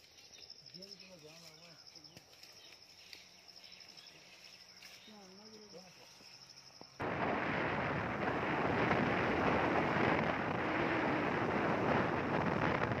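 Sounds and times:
wind buffeting microphone: 7.0s - 13.0s.

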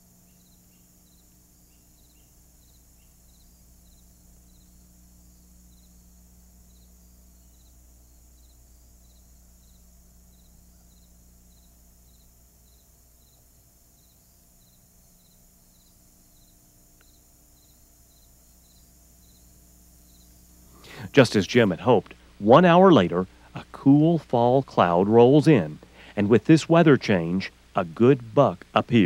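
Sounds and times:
faint cricket chirping: 0.0s - 29.0s
low steady hum: 0.0s - 29.0s.

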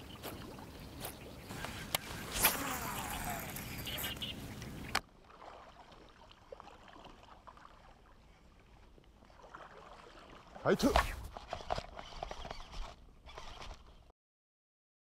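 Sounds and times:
water sloshing and splashing: 0.0s - 12.8s
faint lapping water: 0.0s - 14.0s
fishing reel clicks: 11.5s - 13.9s.

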